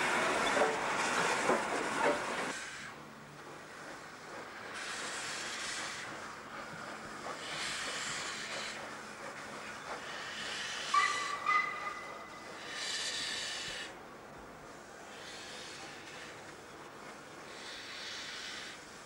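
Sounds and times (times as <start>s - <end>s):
steam locomotive hissing steam: 0.0s - 19.0s
steam whistle toot: 10.8s - 13.1s.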